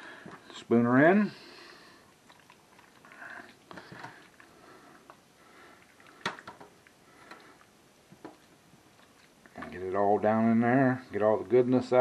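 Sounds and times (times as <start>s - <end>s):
wet squelches: 1.7s - 10.0s.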